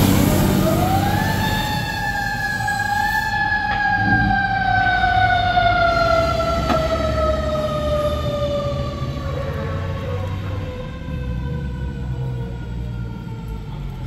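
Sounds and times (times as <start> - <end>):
truck engine running: 0.0 - 1.7
mechanical siren winding down: 0.0 - 14.0.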